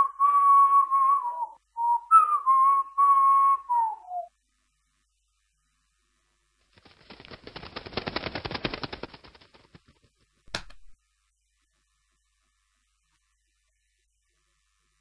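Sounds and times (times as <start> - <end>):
cartoon wing flapping clatter: 6.6 - 10.9.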